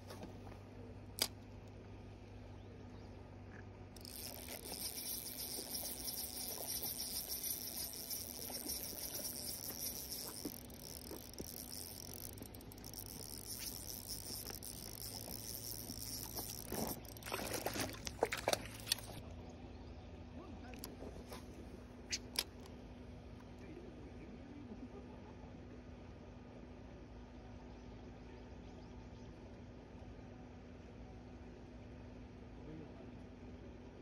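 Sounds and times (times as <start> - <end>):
fishing reel whirring: 4.0 - 19.2
water splashes: 13.0 - 19.2.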